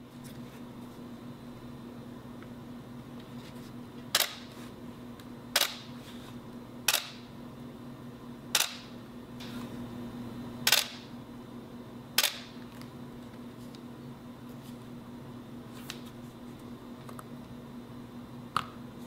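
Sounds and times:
camera shutter clacks: 0:08.6 - 0:08.9, 0:10.7 - 0:11.0.

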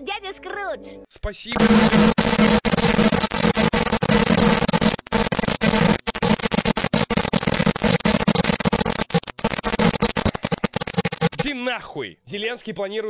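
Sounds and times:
harsh distorted alert noise: 0:01.5 - 0:11.6.

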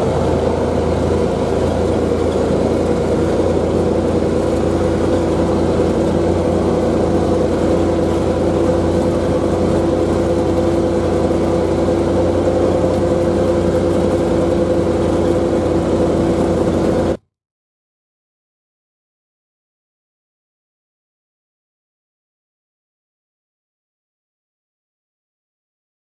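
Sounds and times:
vehicle engine running: 0:00.0 - 0:17.2.

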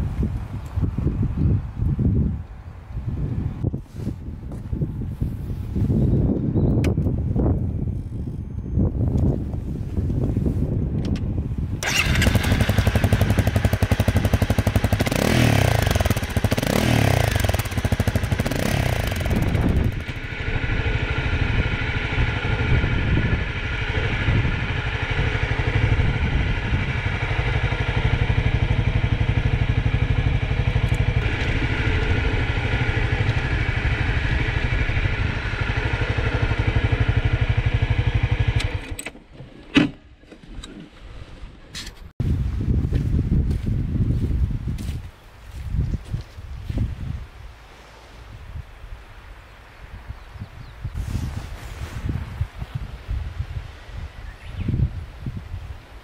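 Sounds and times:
motorcycle engine starting and revving: 0:10.0 - 0:40.9, 0:50.9 - 0:53.0.

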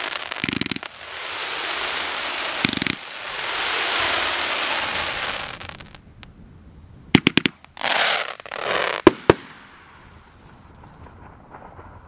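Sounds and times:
firework hissing: 0:00.0 - 0:06.0, 0:07.8 - 0:12.0
firework sharp cracks: 0:00.0 - 0:06.0, 0:07.1 - 0:12.0.

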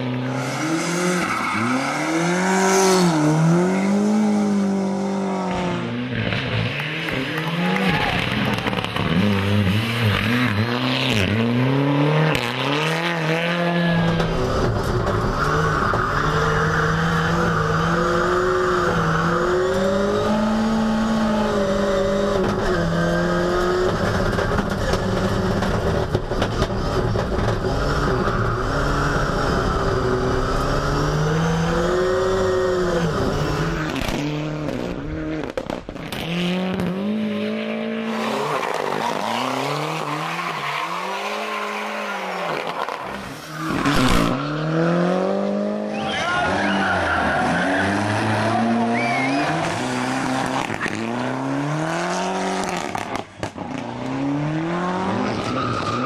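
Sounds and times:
rally car engine revving: 0:00.0 - 0:56.0
tyres squealing: 0:45.8 - 0:51.0.

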